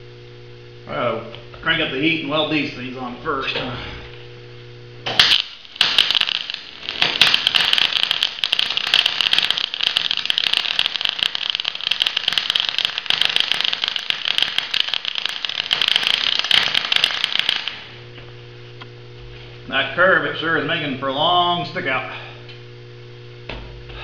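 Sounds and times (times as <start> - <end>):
welder arc crackling: 4.9 - 19.0.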